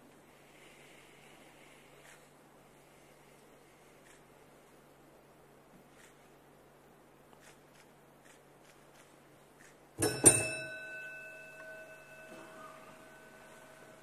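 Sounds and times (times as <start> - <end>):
metal bell ringing: 10.0 - 14.0.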